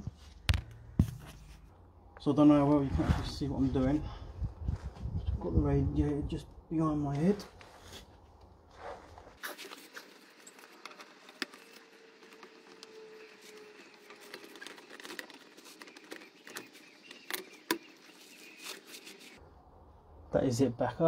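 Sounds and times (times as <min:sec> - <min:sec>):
plastic clicks and scrapes: 0:09.5 - 0:19.4.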